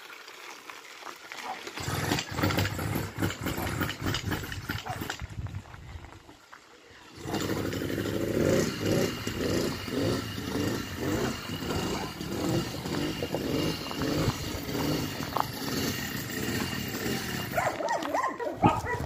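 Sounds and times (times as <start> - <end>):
two-stroke engine running: 1.8 - 5.4, 7.1 - 18.0.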